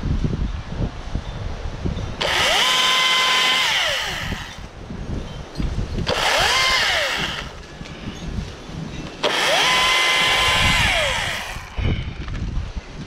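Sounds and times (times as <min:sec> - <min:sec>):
battery chainsaw whining: 0:02.2 - 0:04.7, 0:06.0 - 0:07.7, 0:09.2 - 0:11.8.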